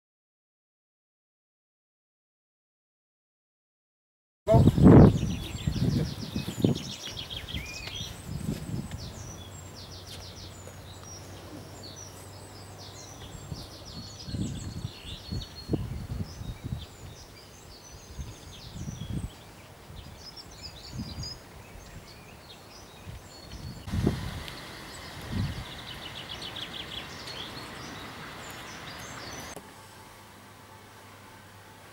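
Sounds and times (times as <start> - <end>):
songbirds chirping and singing: 4.5 - 29.6
wind rumble on microphone: 4.5 - 29.6.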